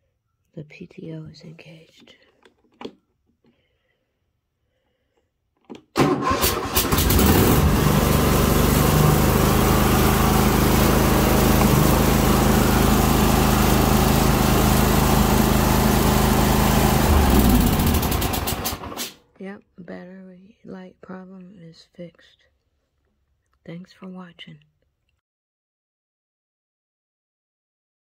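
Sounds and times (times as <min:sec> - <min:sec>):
mower engine cranking and running: 0:06.0 - 0:19.2.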